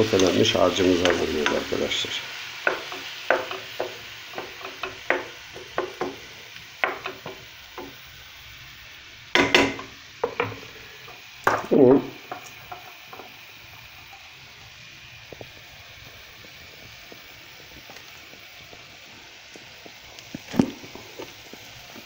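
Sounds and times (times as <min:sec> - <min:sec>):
wooden spoon stirring in pot: 0:00.0 - 0:08.2, 0:09.4 - 0:14.4
faint oil sizzle: 0:00.0 - 0:22.0.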